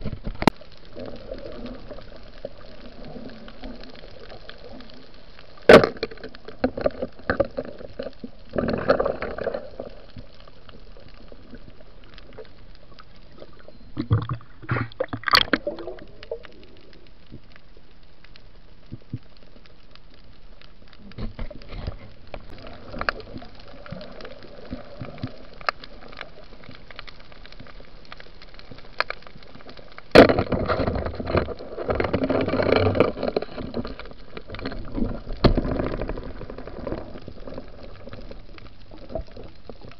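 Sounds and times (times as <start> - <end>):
steady underwater hiss: 0.0 - 31.8
bubbling and gurgling water: 0.0 - 39.9.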